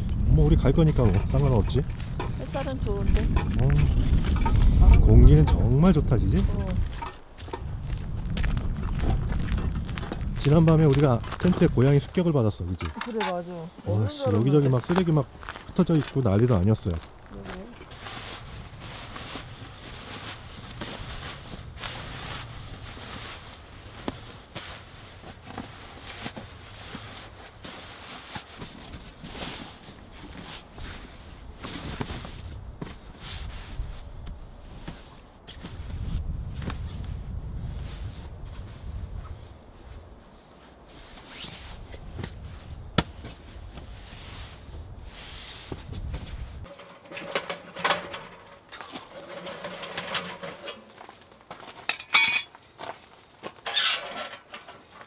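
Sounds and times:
crinkly rustling of sleeping bag: 17.3s - 36.1s.

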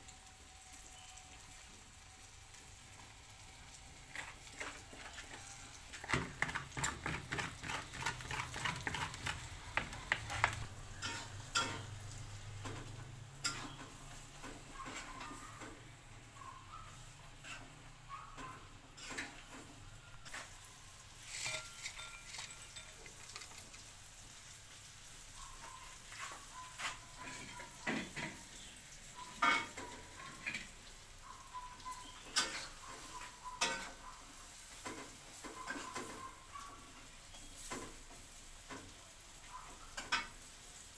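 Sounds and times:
oil sizzling with frying food: 0.0s - 40.9s.

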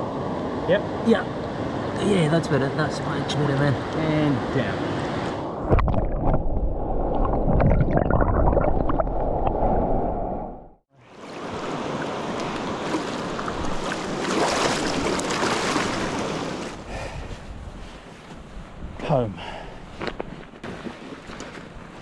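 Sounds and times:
underwater bubbling: 5.6s - 10.7s.

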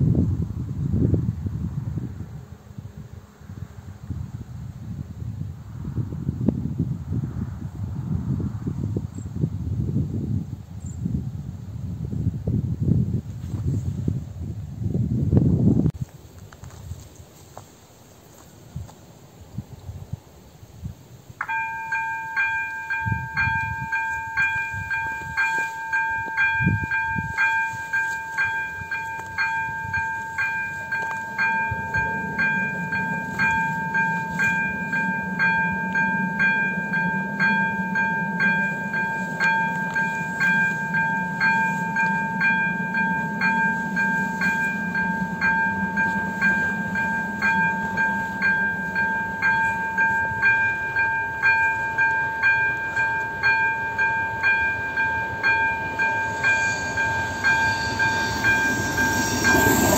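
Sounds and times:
level crossing warning bell: 21.4s - 59.9s
low rumble: 26.4s - 59.9s.

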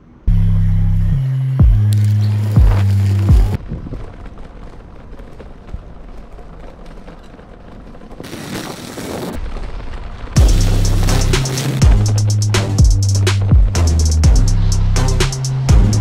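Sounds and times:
bicycle rolling over cobblestones: 1.6s - 13.8s
wind buffeting microphone: 2.0s - 13.8s
loud hiss: 10.4s - 16.0s.

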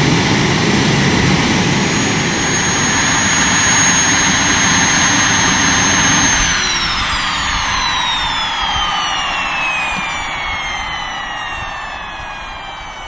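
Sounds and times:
high turbine whine: 0.0s - 13.0s
jet engine exhaust rushing: 0.0s - 13.0s.

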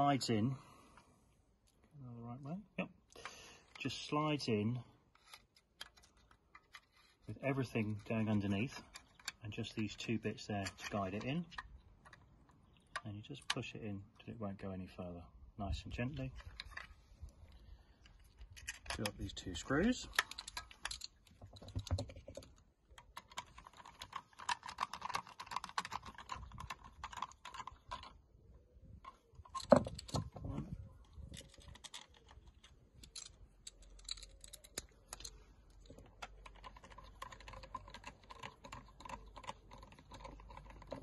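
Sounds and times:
screws clicking and rattling: 19.8s - 28.2s, 31.3s - 41.0s.

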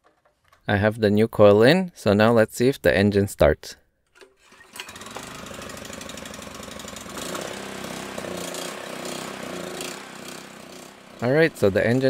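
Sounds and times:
recoil starter pull: 4.1s - 12.0s
small engine running: 4.3s - 12.0s.

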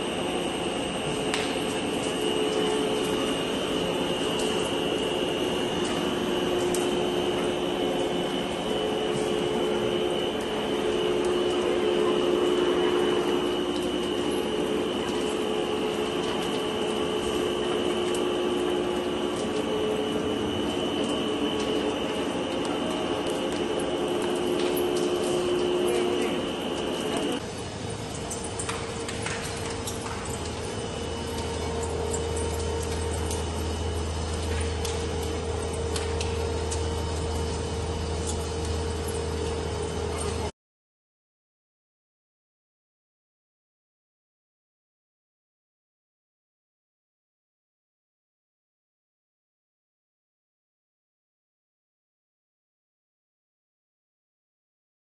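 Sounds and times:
rubber mill humming: 0.0s - 40.5s.

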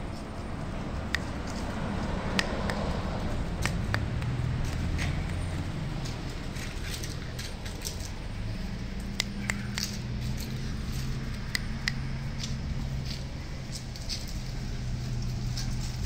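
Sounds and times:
puppies scuffling on tiles: 4.6s - 8.3s, 12.4s - 16.0s
claws clicking on tiles: 9.0s - 12.6s.

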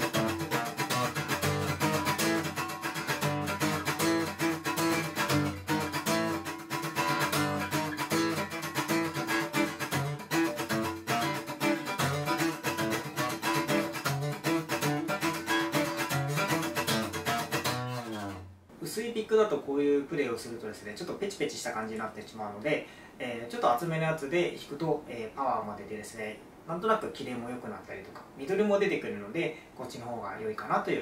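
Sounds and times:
acoustic guitar strumming: 0.0s - 18.6s.

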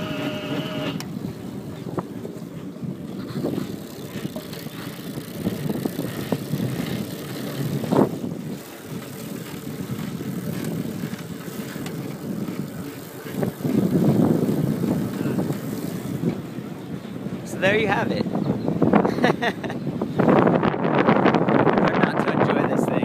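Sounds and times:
trike rolling on pavement: 0.0s - 17.6s
wind rush: 0.0s - 23.0s.

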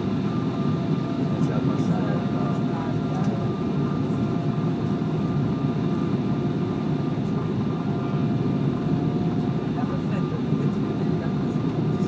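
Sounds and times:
deep roar of jet engines: 0.0s - 12.0s.

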